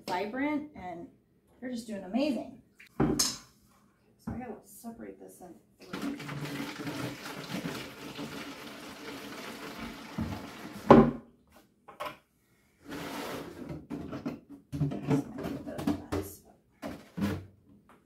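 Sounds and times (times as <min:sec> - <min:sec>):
liquid pouring into plastic jug: 0:05.8 - 0:11.1
bucket knocking down: 0:09.7 - 0:11.2.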